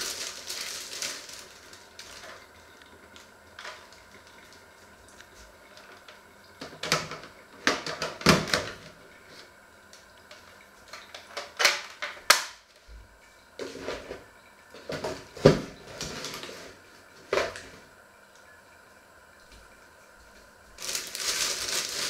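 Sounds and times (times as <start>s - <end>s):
rustling handling noise: 0.0s - 2.6s, 20.7s - 22.0s.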